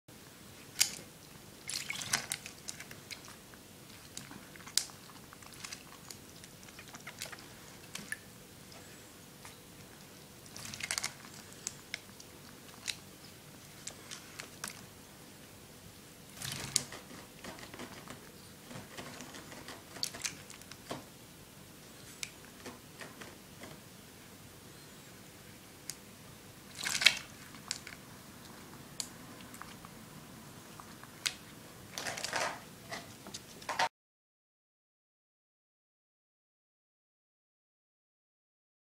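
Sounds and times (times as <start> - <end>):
water sloshing in bowl: 1.6 - 8.8, 10.4 - 13.0, 26.7 - 27.9.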